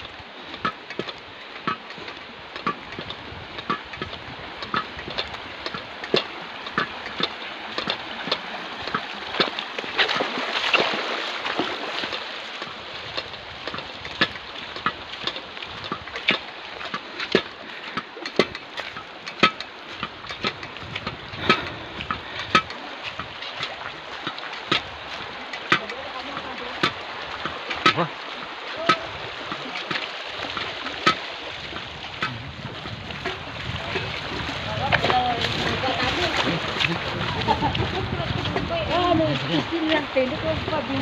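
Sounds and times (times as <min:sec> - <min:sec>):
flowing water rushing: 0:00.0 - 0:41.0
footsteps splashing through water: 0:00.0 - 0:41.0.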